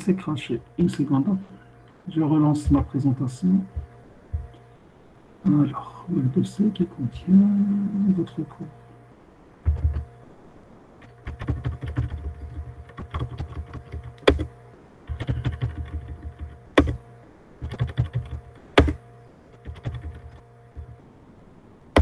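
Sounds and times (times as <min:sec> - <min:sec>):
typing on computer keyboard: 0:09.6 - 0:10.0, 0:11.2 - 0:14.5, 0:15.1 - 0:17.0, 0:17.6 - 0:19.0, 0:19.6 - 0:20.4.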